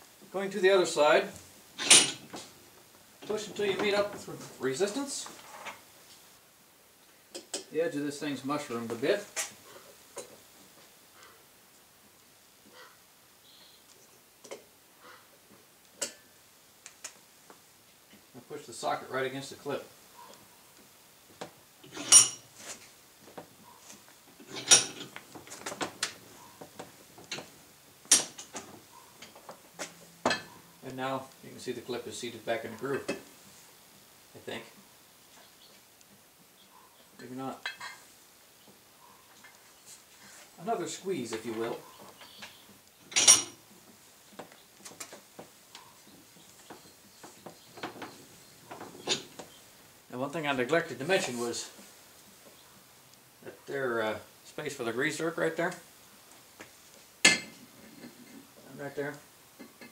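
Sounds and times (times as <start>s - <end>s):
metallic clanks of steel on steel: 1.8s - 2.3s, 21.8s - 22.4s, 24.5s - 25.1s, 28.1s - 28.6s, 43.1s - 43.6s.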